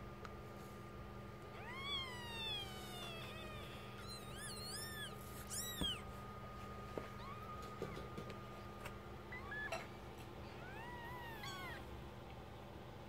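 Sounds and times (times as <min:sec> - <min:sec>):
kittens mewing: 0:01.5 - 0:06.1, 0:07.1 - 0:08.5, 0:09.2 - 0:12.0.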